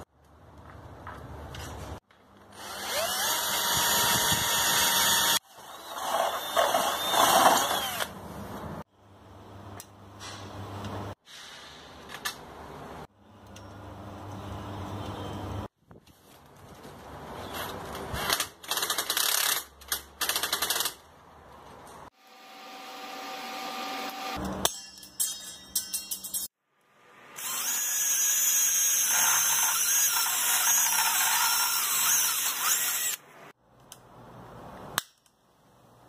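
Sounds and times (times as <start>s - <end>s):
drill boring through metal: 2.6s - 8.1s, 27.4s - 33.2s
high drill whine: 2.6s - 8.1s, 27.4s - 33.2s.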